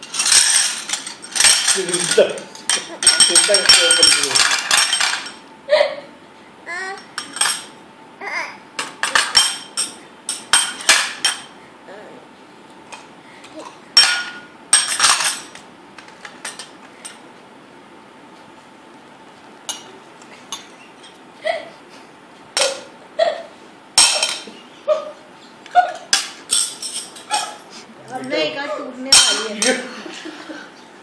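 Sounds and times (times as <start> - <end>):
glass bowls and plates clinking: 0.0 - 5.4, 7.2 - 7.7, 8.8 - 11.5, 14.0 - 15.6, 24.0 - 24.6, 25.9 - 27.6, 29.1 - 29.9.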